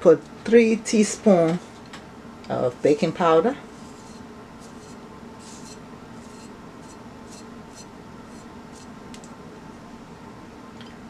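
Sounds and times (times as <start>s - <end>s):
soft scrapes on a plate: 3.7s - 8.9s.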